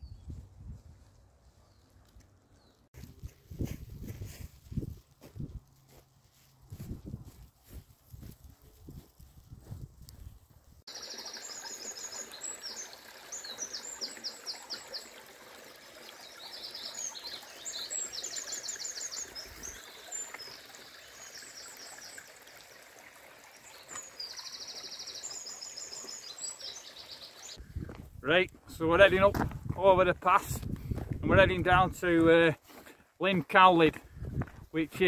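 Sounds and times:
rocky stream rushing: 10.9s - 27.6s
small birds trilling and chirping: 10.9s - 27.6s.

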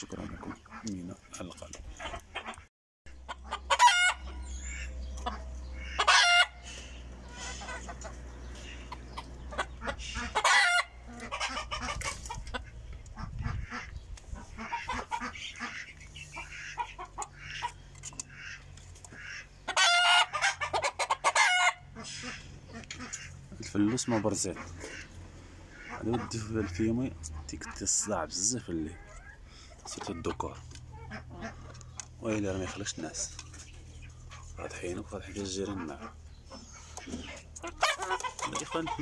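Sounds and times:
hens clucking: 0.0s - 39.0s
loud chicken calls: 3.2s - 23.4s, 35.8s - 39.0s.

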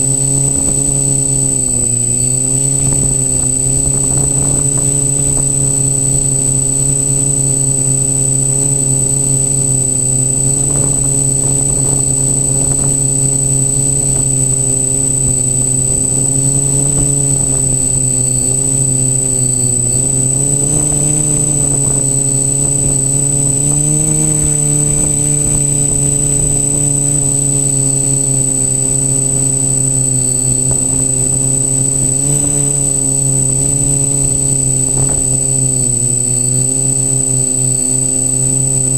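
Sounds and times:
high-pitched whine: 0.0s - 38.9s
quadcopter propellers buzzing: 0.0s - 38.9s.

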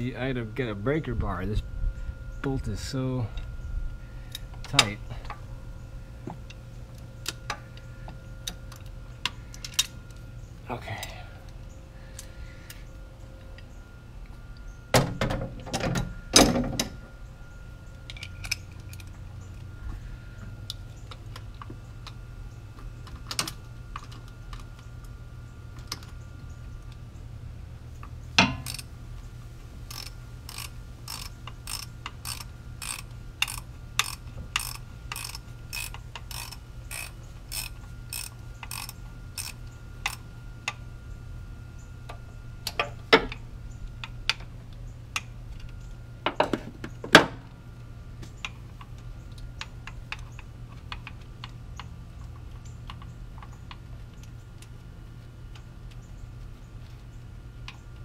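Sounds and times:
socket ratchet clicking: 28.4s - 28.9s, 29.9s - 40.8s.

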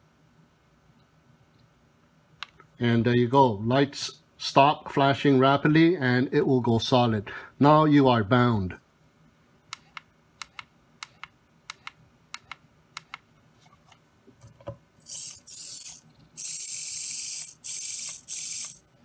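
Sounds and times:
toy car motor whirring: 15.0s - 18.9s.

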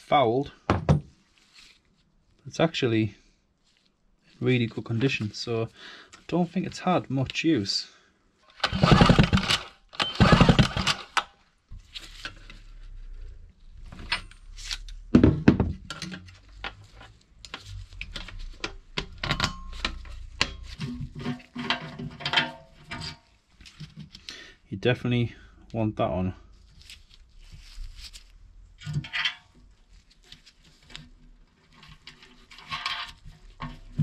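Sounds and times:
recoil starter pulls: 8.5s - 11.3s.

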